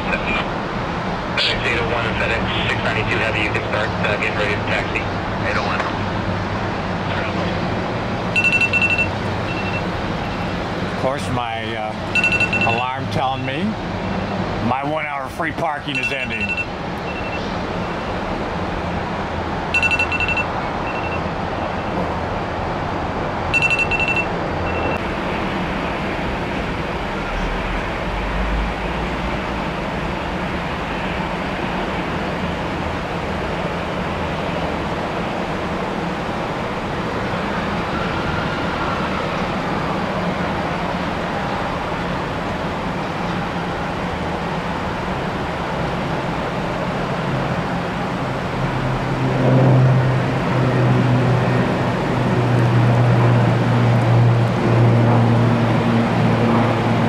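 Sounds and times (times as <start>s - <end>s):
airliner engines: 0.0s - 57.0s
high electronic beeping: 8.4s - 10.4s, 12.1s - 12.9s, 15.8s - 18.0s, 19.8s - 22.0s, 23.6s - 25.0s.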